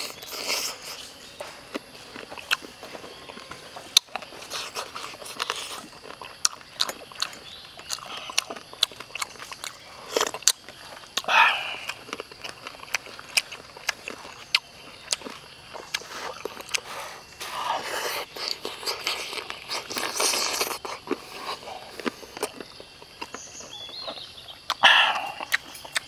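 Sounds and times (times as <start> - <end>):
man chewing: 0.0 - 26.0
lip smacks and mouth clicks: 24.6 - 26.0.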